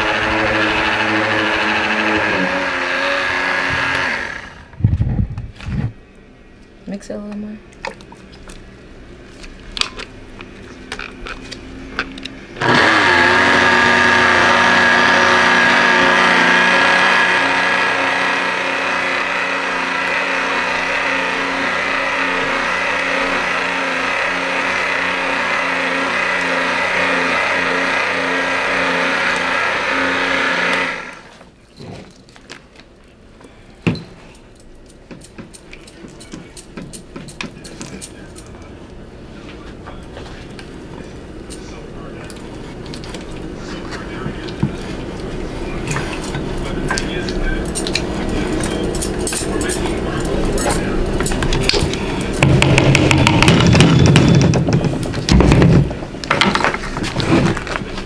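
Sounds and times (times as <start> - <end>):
immersion blender running: 0.0 - 4.8, 12.6 - 31.4, 52.4 - 54.5
knocks and clatter: 50.6 - 57.8.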